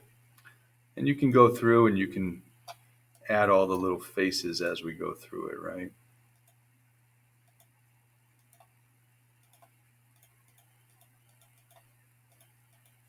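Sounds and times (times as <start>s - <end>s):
low steady hum: 0.0s - 13.0s
computer mouse clicks: 6.3s - 6.6s, 7.4s - 7.8s, 8.4s - 8.7s, 9.4s - 13.0s.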